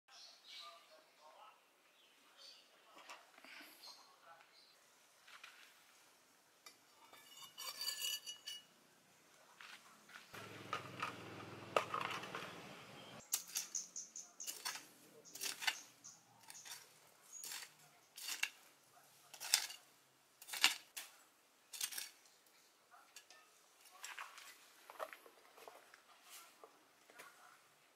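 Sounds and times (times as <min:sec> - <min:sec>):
hand hoe chopping stony soil: 0:14.4 - 0:18.6, 0:19.3 - 0:19.8, 0:20.4 - 0:21.1, 0:21.8 - 0:22.2.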